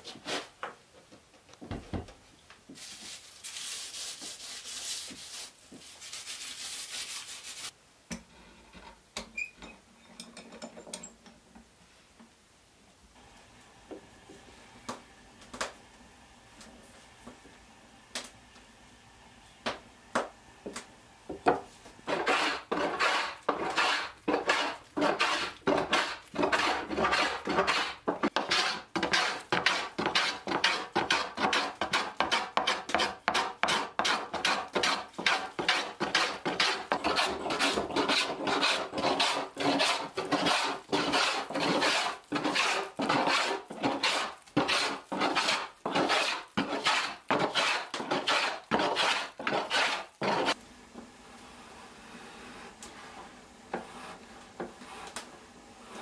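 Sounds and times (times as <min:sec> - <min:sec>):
plane shaving a board: 0:22.0 - 0:50.6.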